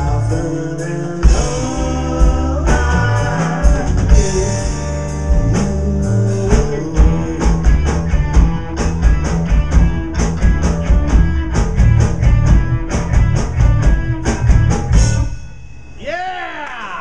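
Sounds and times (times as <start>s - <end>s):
rock band playing: 0.0s - 16.1s
drum and cymbal hits: 1.2s - 16.4s.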